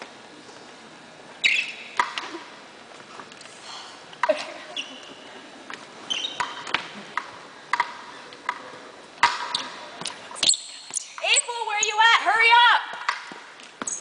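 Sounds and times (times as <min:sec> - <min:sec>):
sneakers squeaking on gym floor: 0:01.4 - 0:02.0, 0:04.6 - 0:06.9, 0:09.3 - 0:12.0, 0:13.8 - 0:14.0.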